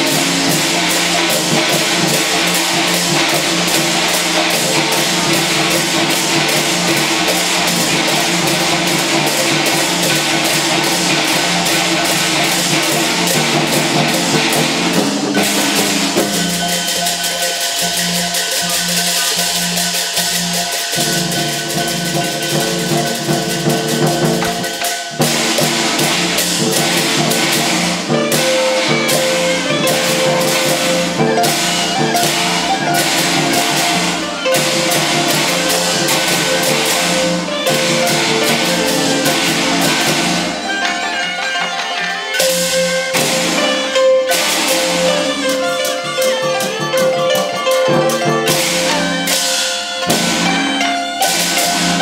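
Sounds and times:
gongs struck: 0:00.0 - 0:52.0
large drum beating: 0:00.0 - 0:52.0
small cymbals struck: 0:00.0 - 0:52.0
reed horns playing melody: 0:27.5 - 0:52.0.

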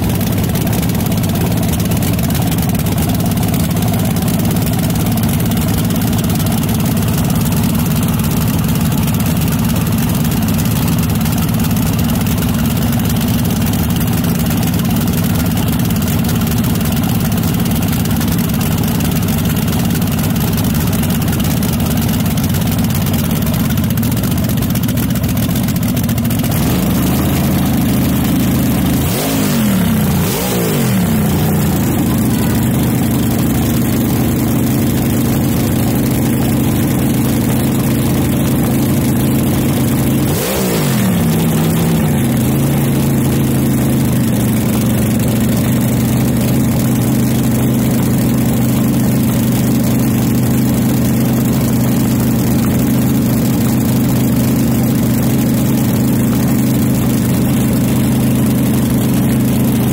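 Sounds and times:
dragster engine idling: 0:00.0 - 0:59.9
engine revving: 0:26.4 - 0:44.6.

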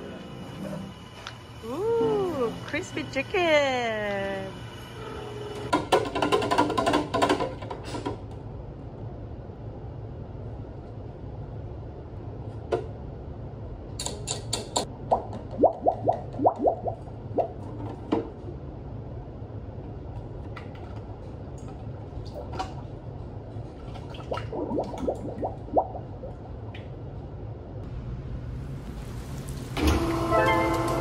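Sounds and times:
thick liquid blooping drips: 0:15.1 - 0:17.5, 0:24.2 - 0:27.0.

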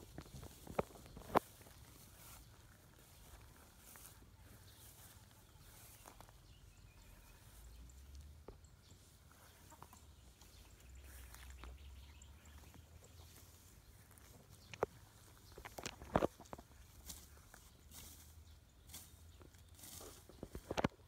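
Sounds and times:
footsteps through tall vegetation: 0:00.0 - 0:21.0
rustling of weeds: 0:00.0 - 0:21.0.

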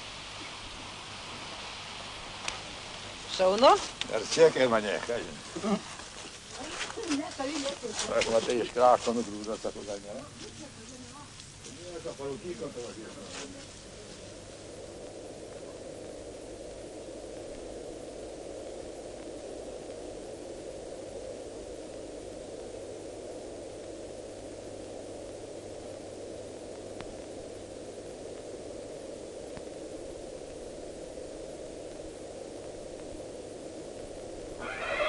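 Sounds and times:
steady hiss: 0:00.0 - 0:35.0
faint clicks: 0:03.5 - 0:04.2
low hum: 0:12.2 - 0:34.9.

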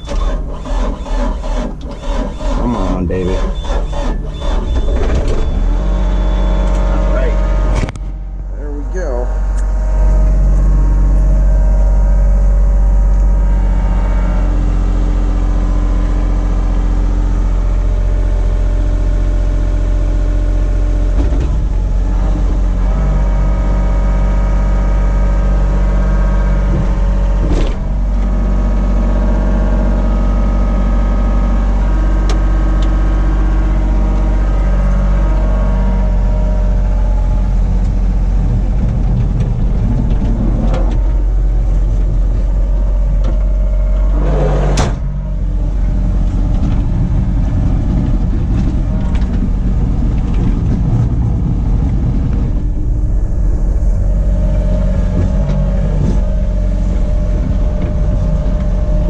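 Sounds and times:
excavator diesel engine running: 0:00.0 - 0:59.0
sharp clunk: 0:44.6 - 0:45.2.

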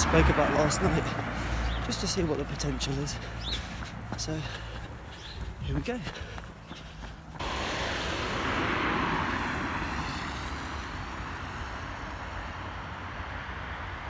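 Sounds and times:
steady low rumble: 0:03.0 - 0:13.3
tyre hiss on wet road: 0:07.4 - 0:12.6.

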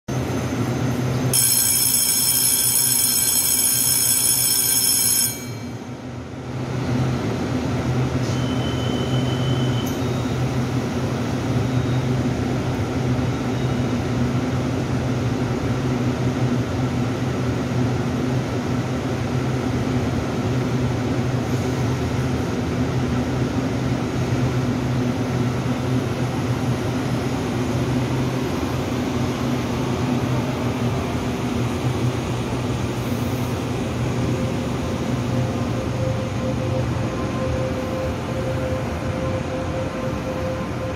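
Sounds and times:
train doors shutting: 0:08.0 - 0:10.8
door-closing warning tone: 0:08.2 - 0:10.5.

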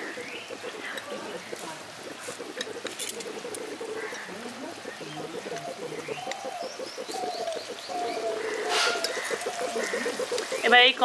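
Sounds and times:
doves cooing: 0:00.0 - 0:11.0
small birds chirping: 0:00.0 - 0:11.0.

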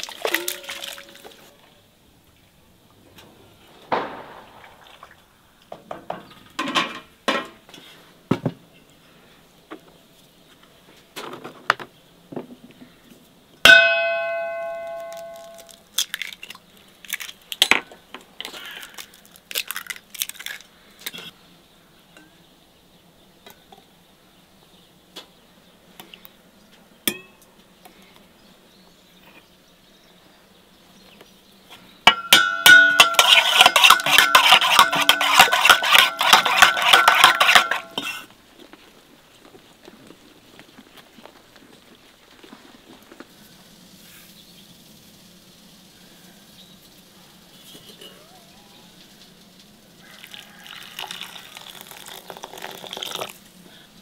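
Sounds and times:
loud ringing metal clang: 0:13.7 - 0:15.7, 0:32.1 - 0:33.3
utensil clinking against metal pot: 0:32.1 - 0:38.2
metal cookware being handled: 0:32.1 - 0:38.3.

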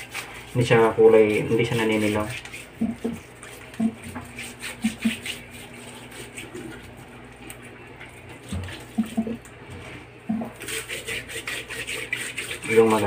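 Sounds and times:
hands scrubbing salt on chicken: 0:00.0 - 0:07.0, 0:10.6 - 0:13.0.

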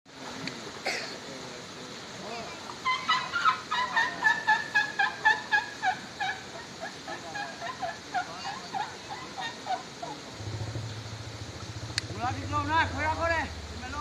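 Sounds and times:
elephant gliding call: 0:02.7 - 0:13.8.

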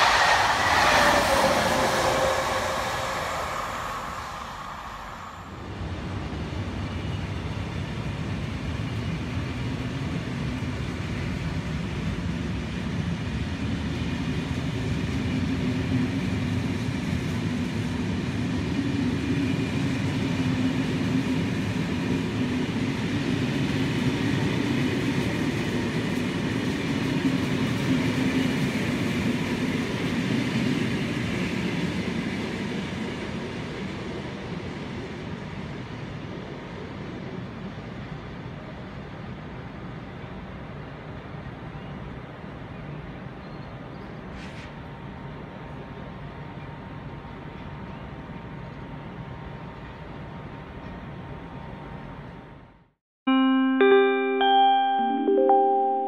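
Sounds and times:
low hum: 0:00.0 - 0:06.7
train wheels rumbling: 0:00.0 - 0:41.4.

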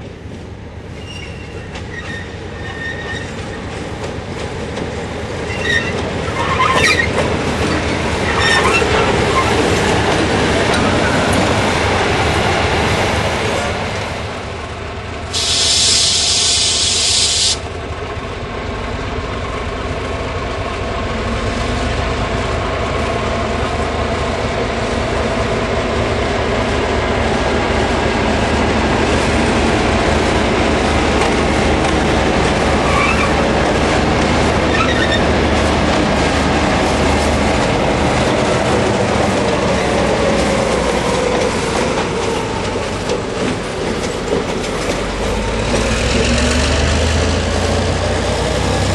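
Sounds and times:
diesel locomotive engines: 0:00.0 - 0:48.9
wheel squeal: 0:01.0 - 0:03.5, 0:05.5 - 0:07.2, 0:08.3 - 0:09.6, 0:32.8 - 0:33.4, 0:34.7 - 0:35.3
loud hiss: 0:15.3 - 0:17.7.

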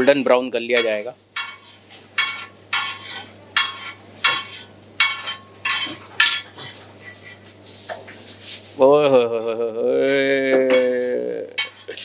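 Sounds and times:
metal spatula scraping griddle: 0:00.8 - 0:08.7, 0:10.1 - 0:12.0
frying sizzle: 0:11.6 - 0:12.0.

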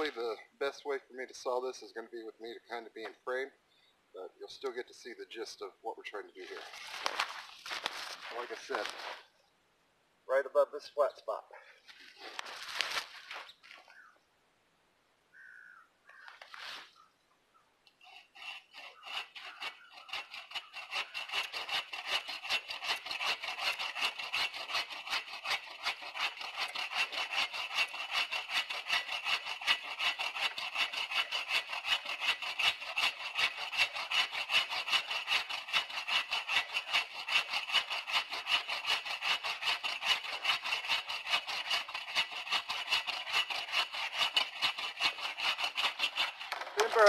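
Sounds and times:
bucksaw cutting wood: 0:00.0 - 0:00.5, 0:06.4 - 0:09.2, 0:12.0 - 0:13.5, 0:17.9 - 0:47.0.

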